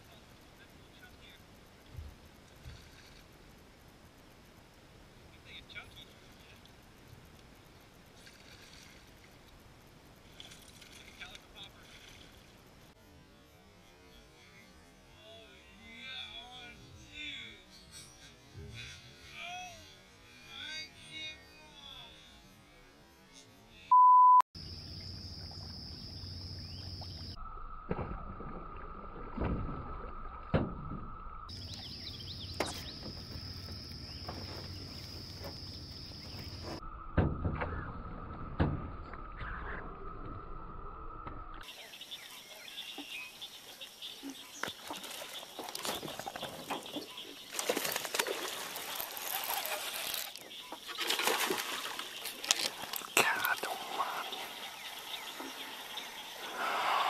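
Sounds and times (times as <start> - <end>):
insect drone: 0.0 - 23.9, 24.6 - 57.0
open water ambience: 0.0 - 24.0, 24.6 - 57.0
short loud beep: 23.9 - 24.4
sharp splashes: 47.5 - 55.0.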